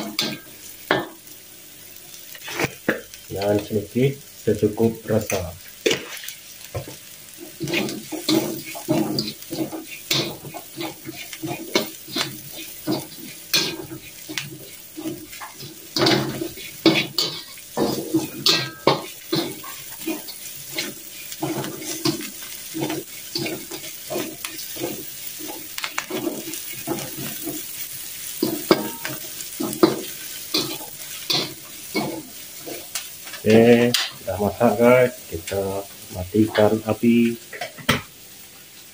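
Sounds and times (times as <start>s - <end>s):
oil sizzling: 0.0s - 38.9s
metal spatula scraping a wok: 7.4s - 34.2s.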